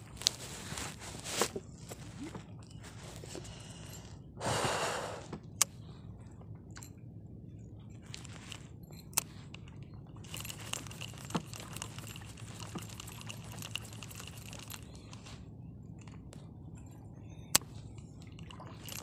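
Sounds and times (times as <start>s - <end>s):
fishing rod handling: 0.0s - 4.1s, 8.1s - 15.4s, 17.6s - 19.0s
low steady background noise: 0.0s - 19.0s
fishing reel clicking: 10.3s - 15.2s.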